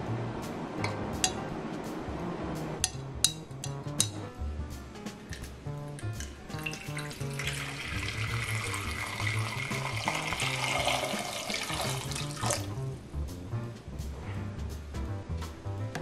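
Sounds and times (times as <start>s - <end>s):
background music: 0.0s - 16.0s
water pouring and splashing: 6.0s - 12.8s.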